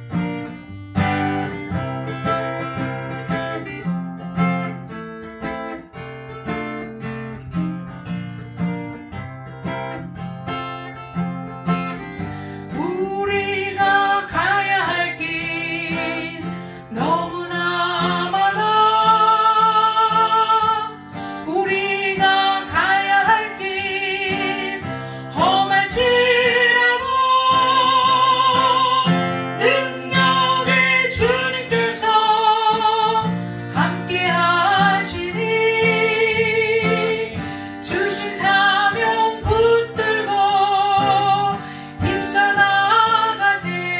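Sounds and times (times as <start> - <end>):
acoustic guitar strumming: 0.0 - 43.9
woman singing with vibrato: 12.7 - 43.9.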